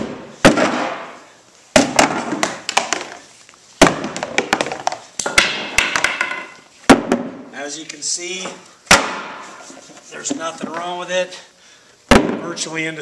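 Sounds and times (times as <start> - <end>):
plastic fender slammed on concrete: 0.0 - 3.2, 3.8 - 7.4, 8.9 - 9.4, 12.1 - 12.6.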